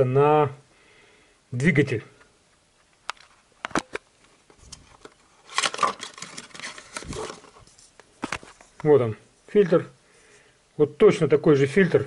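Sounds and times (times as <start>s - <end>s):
rustling and scraping: 3.2s - 9.6s.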